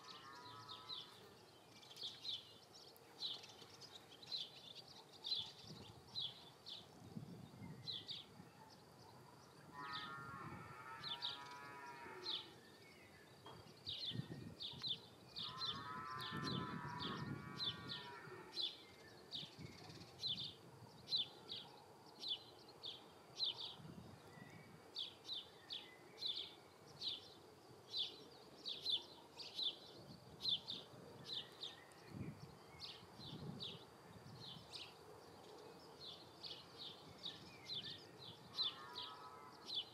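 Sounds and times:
cow mooing: 9.8s - 12.5s, 15.4s - 18.5s
bird chirping: 10.8s - 39.9s.

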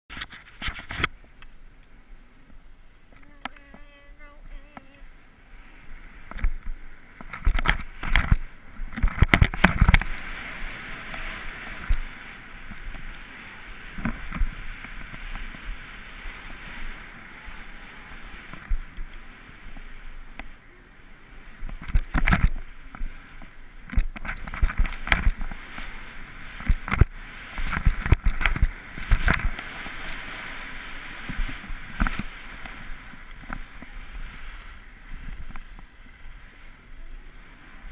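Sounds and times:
sharp knocks and thumps: 6.3s - 10.1s
skis hissing over snow: 10.1s - 18.6s, 28.7s - 37.9s.

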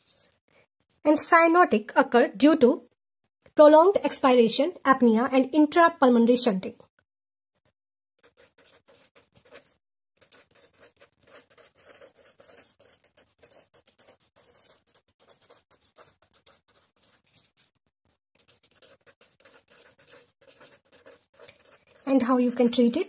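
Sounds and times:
pen scratching on paper: 8.2s - 23.0s.

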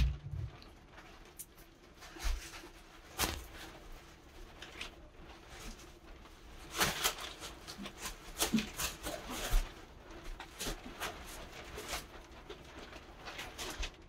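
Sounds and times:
water poured and splashing: 0.0s - 2.5s.

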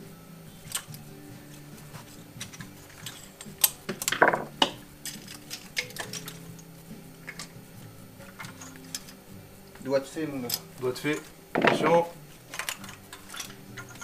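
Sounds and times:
faint background music: 0.0s - 14.0s
plastic and metal parts clinking: 0.6s - 7.6s, 8.3s - 9.2s, 10.4s - 14.0s
object falling: 11.6s - 12.1s.

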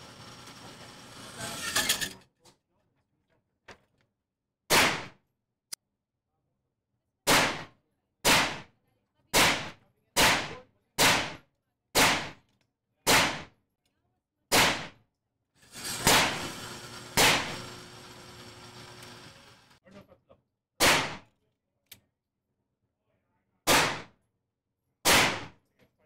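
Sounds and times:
gunshots indoors: 4.7s - 5.2s, 7.2s - 8.7s, 9.3s - 11.4s, 12.0s - 12.4s, 13.1s - 13.5s, 14.5s - 14.9s, 20.8s - 21.3s, 23.7s - 24.2s, 25.0s - 25.6s.

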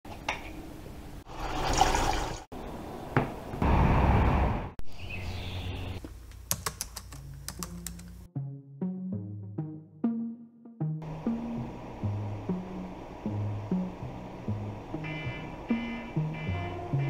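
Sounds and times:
computer keyboard typing: 6.5s - 8.2s.

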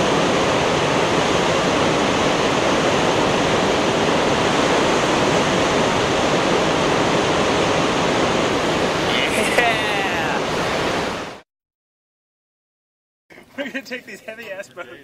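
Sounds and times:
river rapid roaring: 0.0s - 11.4s.

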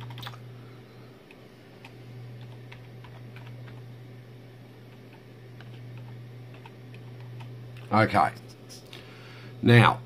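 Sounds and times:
keyboard typing: 0.0s - 0.4s, 1.3s - 3.9s, 4.9s - 7.9s
steady low hum: 0.0s - 10.0s.

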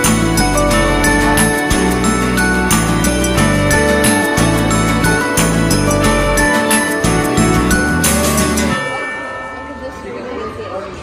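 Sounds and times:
jingle bells shaken: 0.0s - 9.4s
christmas music with bass line: 0.0s - 9.8s.

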